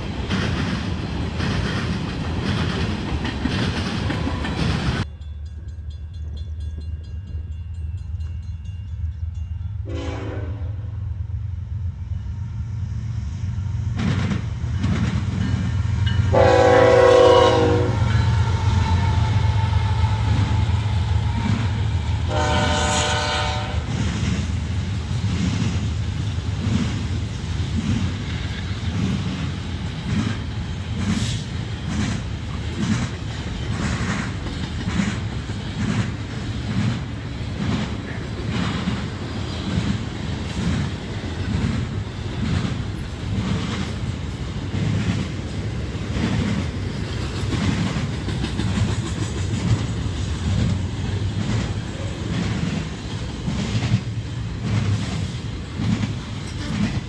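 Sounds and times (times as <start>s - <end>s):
train wheels clacking on rails: 0.0s - 10.5s, 13.8s - 57.0s
locomotive horn blasts: 9.8s - 11.0s, 16.3s - 18.2s, 22.3s - 23.9s.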